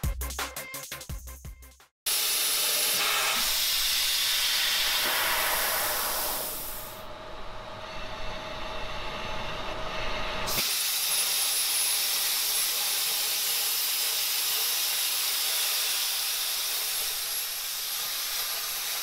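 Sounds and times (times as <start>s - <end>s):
plasma cutter arc hissing: 2.1s - 7.0s, 10.5s - 19.0s
air rushing through torch: 3.0s - 7.0s.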